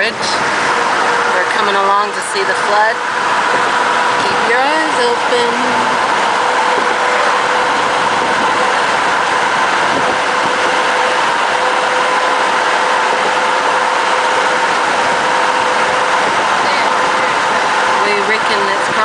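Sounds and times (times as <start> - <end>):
car engine running: 0.0 - 19.0
car road noise: 0.0 - 19.0.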